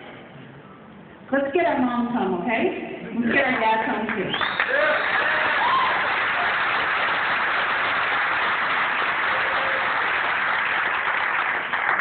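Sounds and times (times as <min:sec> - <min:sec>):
audience applauding: 0:04.2 - 0:12.0.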